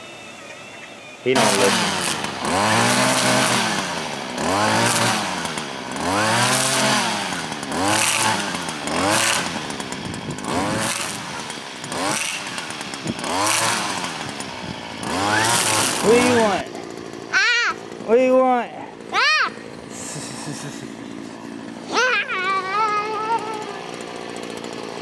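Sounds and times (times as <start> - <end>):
string trimmer engine revving: 0.0 - 25.0.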